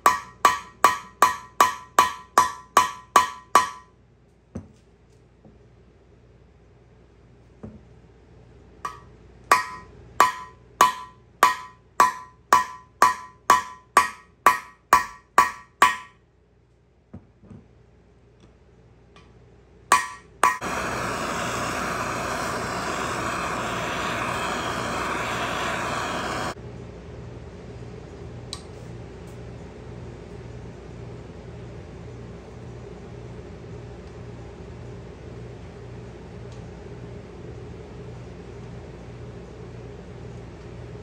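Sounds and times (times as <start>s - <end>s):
hammer blows on steel: 19.9s - 26.6s
loud steady rushing noise: 20.5s - 26.6s.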